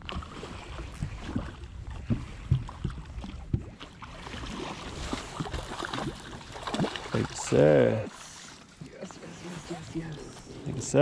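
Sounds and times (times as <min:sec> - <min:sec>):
wind on microphone: 0:00.0 - 0:06.9
fish splashing at surface: 0:00.0 - 0:10.6.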